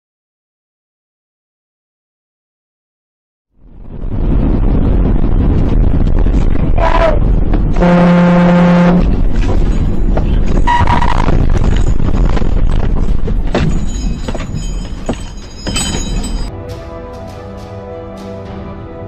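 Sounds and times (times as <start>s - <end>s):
truck engine rumble: 3.6s - 16.5s
road noise: 3.6s - 19.0s
truck air horn blasting: 7.8s - 9.2s, 10.7s - 11.3s.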